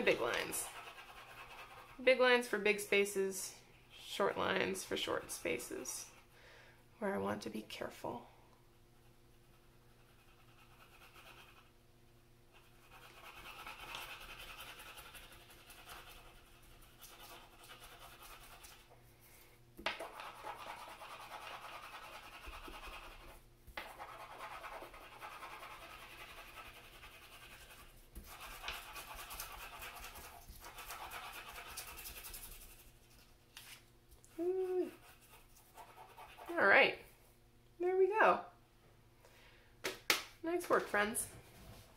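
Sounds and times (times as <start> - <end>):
crayon scratching on paper: 0.0 - 2.5, 9.4 - 11.7, 12.5 - 18.9, 20.0 - 33.2, 34.3 - 36.8.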